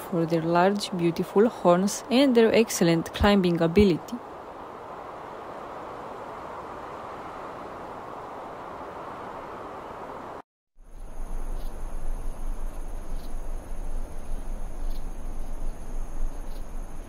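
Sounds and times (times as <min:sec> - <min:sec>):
crickets trilling: 0:10.8 - 0:17.0.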